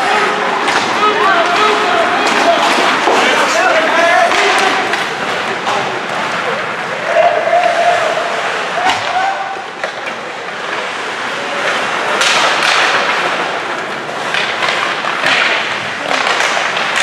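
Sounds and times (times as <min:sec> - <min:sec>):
skates and crowd noise: 0:00.0 - 0:17.0
stick and puck knocks: 0:12.2 - 0:13.4, 0:14.2 - 0:17.0.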